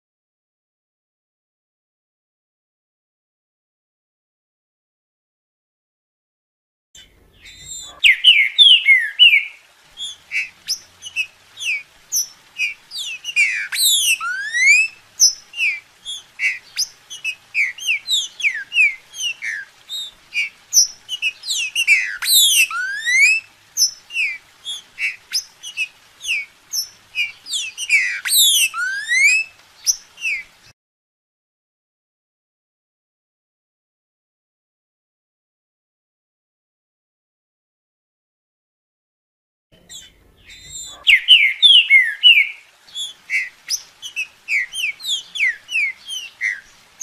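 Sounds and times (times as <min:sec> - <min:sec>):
bird singing whistled notes: 0:07.0 - 0:30.5, 0:39.8 - 0:47.0.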